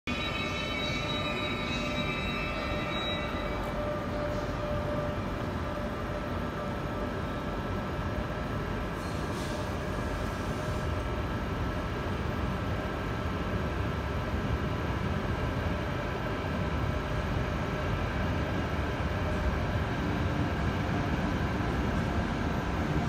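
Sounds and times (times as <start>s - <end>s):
thin whining tones: 0.1s - 6.8s
locomotive electrics humming: 0.1s - 13.6s.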